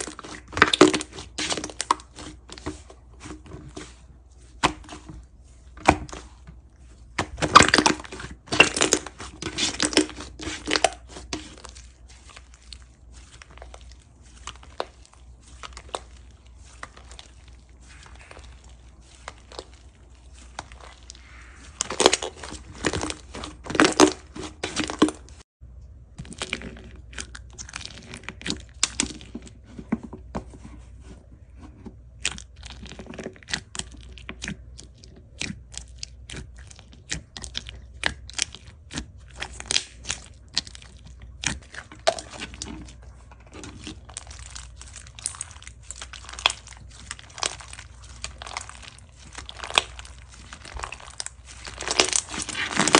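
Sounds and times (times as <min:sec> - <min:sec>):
slime crackling and popping: 0:00.0 - 0:02.8, 0:07.1 - 0:25.4, 0:32.2 - 0:52.9.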